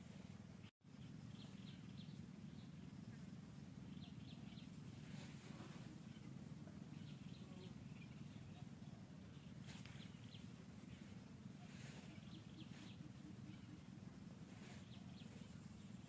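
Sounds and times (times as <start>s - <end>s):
low outdoor hum: 0.0s - 16.0s
bird chirps: 0.9s - 16.0s.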